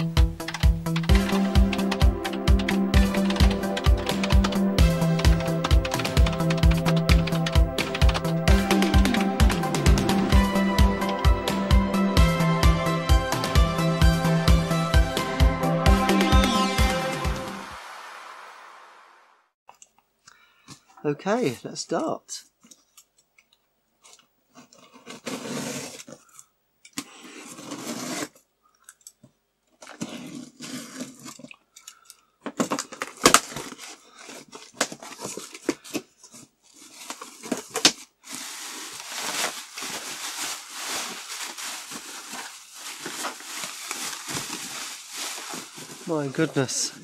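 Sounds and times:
tape and cardboard tearing: 0:24.7 - 0:26.2, 0:27.0 - 0:28.4
bubble wrap rustling: 0:32.6 - 0:47.0.

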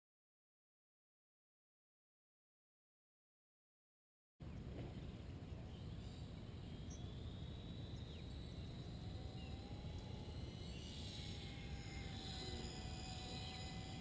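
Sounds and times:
faint high whistling tones: 0:05.5 - 0:14.0
faint rising tone: 0:05.6 - 0:14.0.

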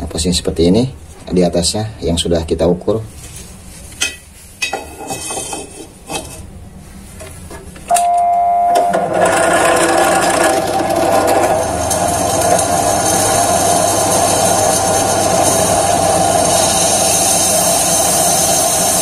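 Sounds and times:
drill press motor hum: 0:08.7 - 0:19.0
drill bit grinding into metal: 0:08.9 - 0:19.0.

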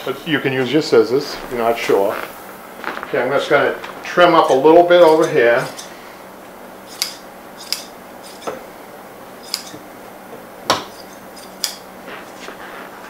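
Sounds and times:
scissors snipping batting: 0:06.9 - 0:08.6, 0:10.8 - 0:11.8.

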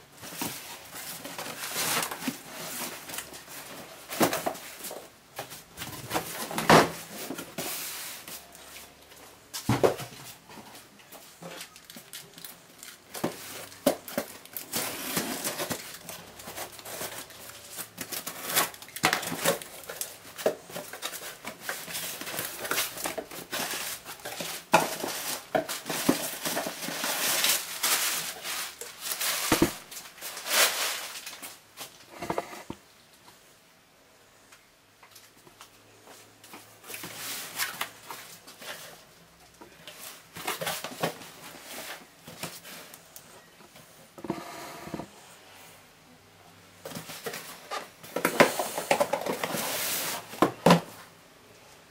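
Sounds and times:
wrapping paper crinkling: 0:11.5 - 0:31.6.

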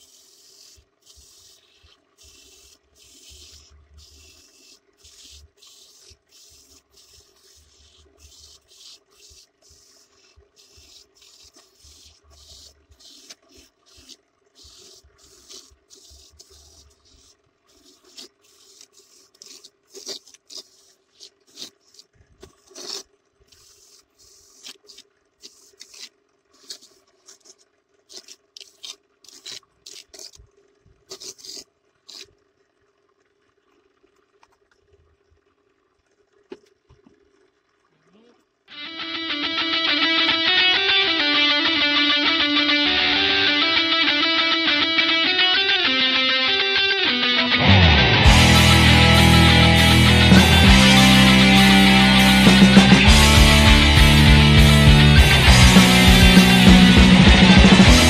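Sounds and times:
coconut rasping on grater: 0:00.0 - 0:32.3
electric motor hum: 0:38.7 - 0:58.0.

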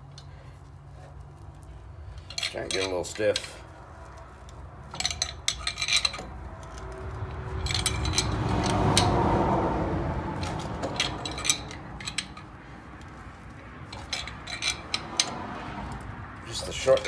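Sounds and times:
ratchet clicking: 0:04.4 - 0:09.2, 0:10.4 - 0:17.0.

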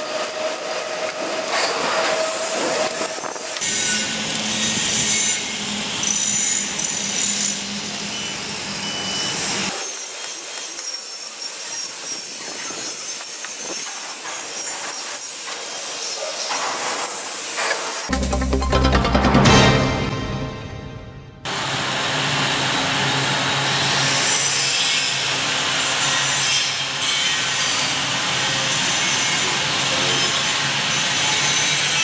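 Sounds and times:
workshop noise: 0:00.0 - 0:07.6, 0:09.7 - 0:22.3.

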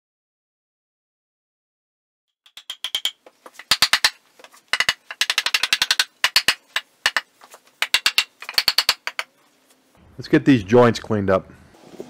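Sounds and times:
mallet striking wood: 0:02.5 - 0:09.3.

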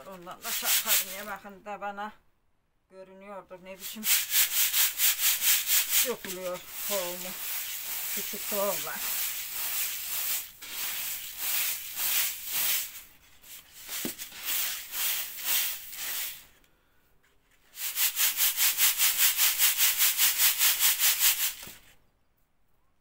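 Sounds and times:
grain hissing in a sieve: 0:00.3 - 0:01.4, 0:03.8 - 0:16.6, 0:17.6 - 0:21.9.

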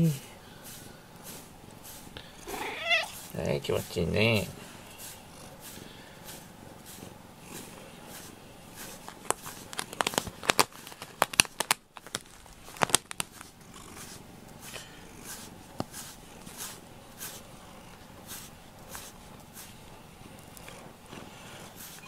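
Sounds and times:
brush rasping through fur: 0:00.0 - 0:11.3, 0:12.3 - 0:22.0
sharp clicks and crackles: 0:09.1 - 0:13.5.

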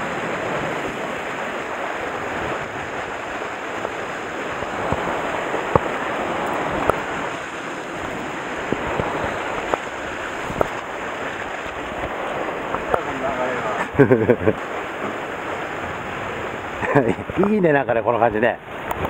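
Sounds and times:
wind on microphone: 0:00.0 - 0:17.5, 0:18.6 - 0:19.0
sea surf washing against rocks: 0:00.0 - 0:19.0.

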